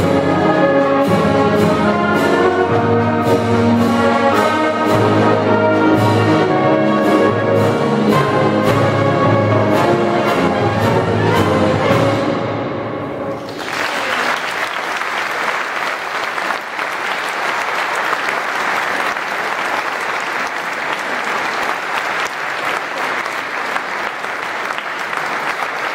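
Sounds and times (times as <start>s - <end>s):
audience applause: 13.4s - 25.9s.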